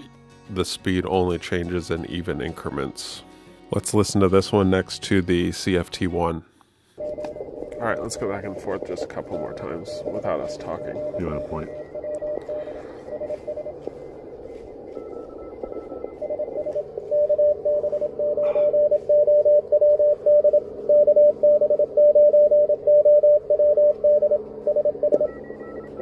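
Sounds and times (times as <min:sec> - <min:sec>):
radio band noise hiss: 0:07.0 - 0:20.8
fainter higher morse signals: 0:07.0 - 0:26.0
morse code tone: 0:07.0 - 0:26.0.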